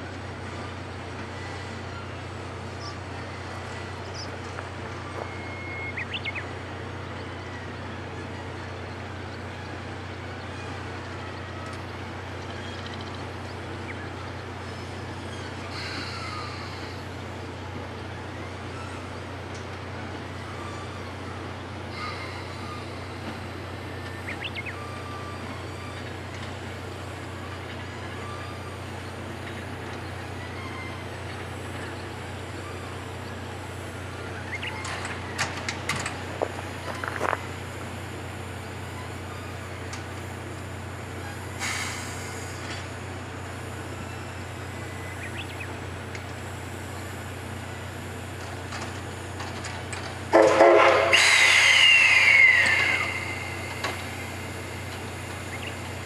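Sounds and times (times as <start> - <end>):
steam locomotive low hum: 0.0 - 56.0
steam hiss: 41.2 - 45.4, 50.3 - 56.0.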